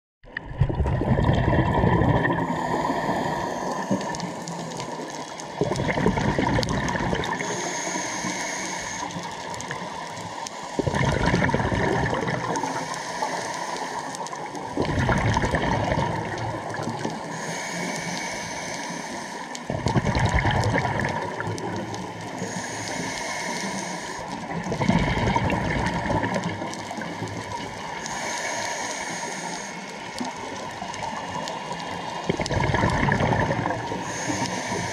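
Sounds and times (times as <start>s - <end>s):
exhaled bubbles gurgling: 0.2s - 34.9s
regulator hissing on inhale: 2.4s - 5.6s, 7.2s - 11.0s, 12.4s - 14.7s, 16.6s - 19.7s, 21.2s - 24.7s, 25.3s - 32.2s, 33.6s - 34.9s.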